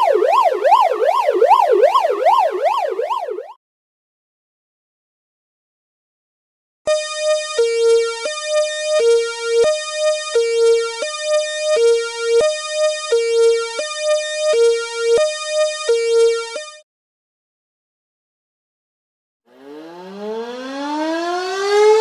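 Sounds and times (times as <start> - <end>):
fire truck hi-lo siren: 0.0 - 3.6, 6.9 - 16.8, 19.5 - 22.0.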